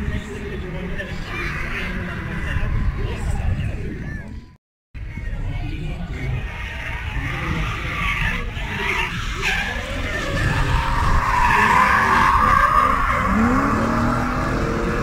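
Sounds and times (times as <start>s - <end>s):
high-revving car engines: 6.1s - 15.0s
tyres squealing and skidding: 6.2s - 15.0s.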